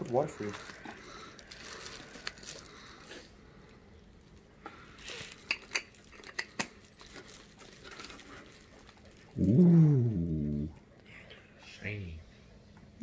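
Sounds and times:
foam plastic crinkling: 0.0s - 3.3s, 4.2s - 9.4s
pitched vocal sound: 9.4s - 10.7s.

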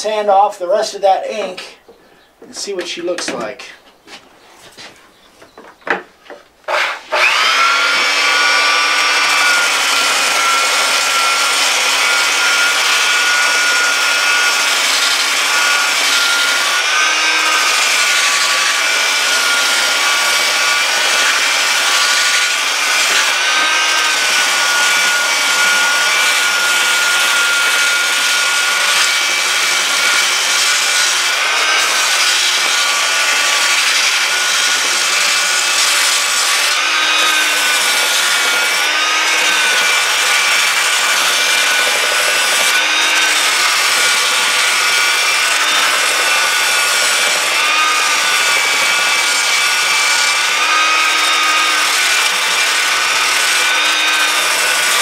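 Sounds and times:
belt sander motor whine: 6.7s - 55.0s.

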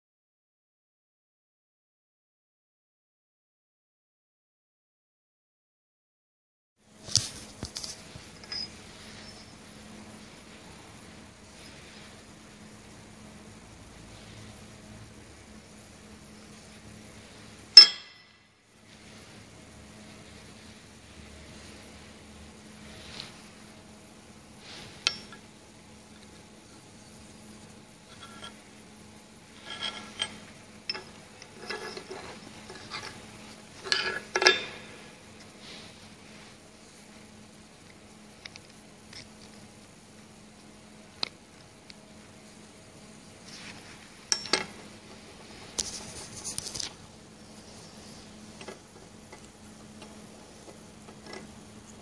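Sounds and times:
steady hiss: 6.9s - 52.0s
metal parts clinking on steel bench: 29.6s - 33.2s, 33.8s - 34.9s, 44.3s - 44.8s.

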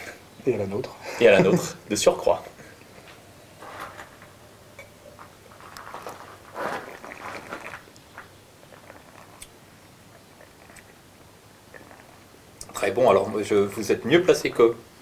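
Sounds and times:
person slurping wine: 6.0s - 7.8s, 8.6s - 9.5s, 10.1s - 11.0s, 11.6s - 12.3s
faint small mouth clicks: 8.7s - 9.6s, 10.4s - 11.0s.

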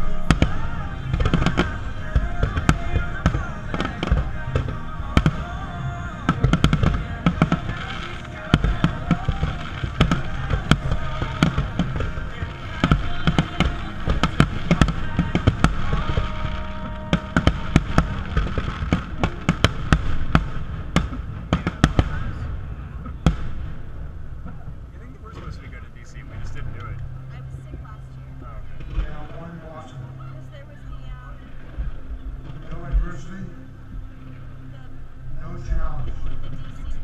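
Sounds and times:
fireworks bursting: 0.0s - 27.0s
music playing: 0.0s - 37.0s.

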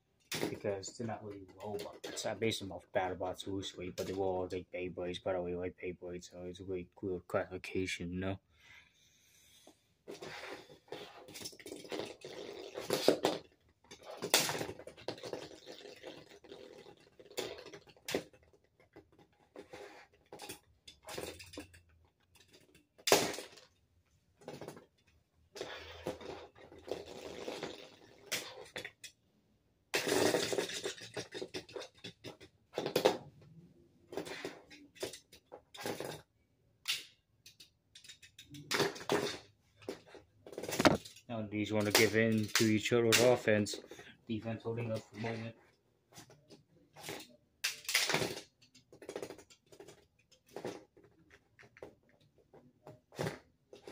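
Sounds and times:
sharp plastic clacks: 40.6s - 41.2s.

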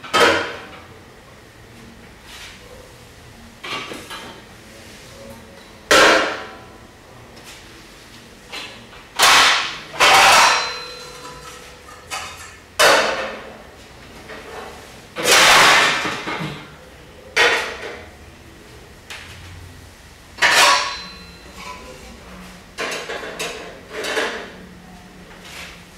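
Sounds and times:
metal plates clanging: 9.2s - 13.2s, 20.4s - 21.8s.

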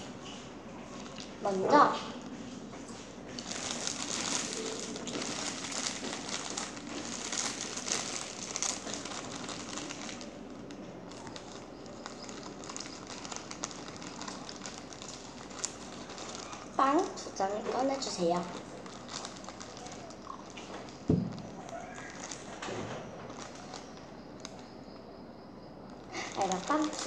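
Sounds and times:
plastic bag crinkling: 0.8s - 1.6s, 3.4s - 24.6s, 25.8s - 27.0s.

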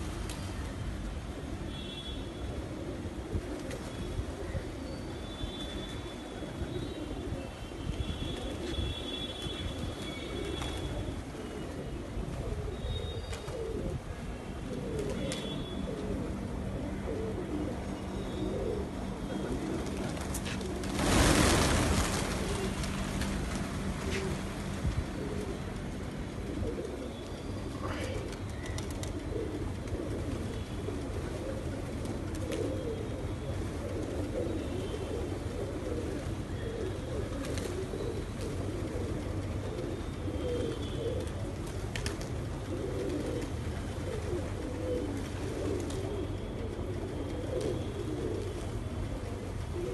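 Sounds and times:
pigeons cooing: 2.5s - 7.7s, 8.4s - 49.9s
wing flaps: 19.8s - 25.4s.

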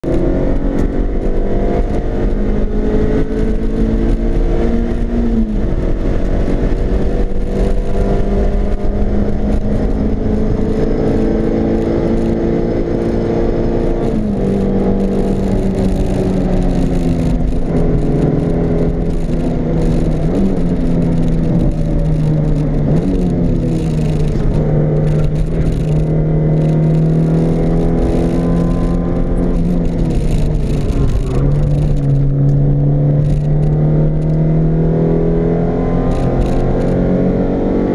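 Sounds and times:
car engine accelerating: 0.0s - 37.9s
wind and tyre noise: 0.0s - 37.9s.

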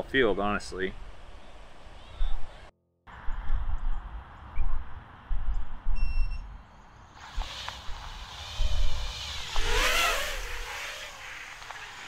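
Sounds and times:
wind rumble on microphone: 2.1s - 6.7s, 7.4s - 12.0s
drone propellers whining: 7.4s - 12.0s.

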